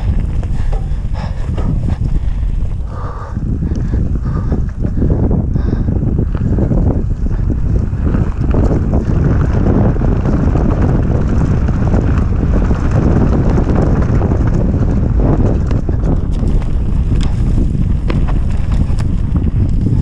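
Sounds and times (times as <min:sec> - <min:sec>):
bike rumbling and rattling on trail: 0:00.0 - 0:20.0
wind buffeting microphone: 0:00.0 - 0:20.0
sharp clicks and ticks: 0:08.0 - 0:20.0.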